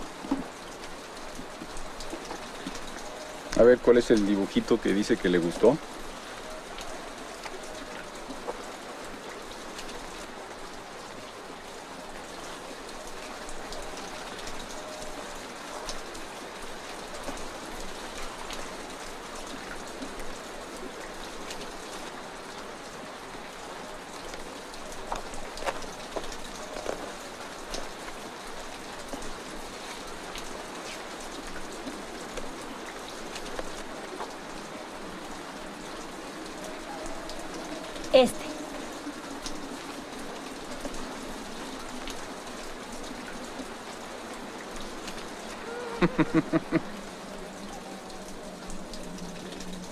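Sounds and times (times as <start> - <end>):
steady hiss: 37.3 - 47.7.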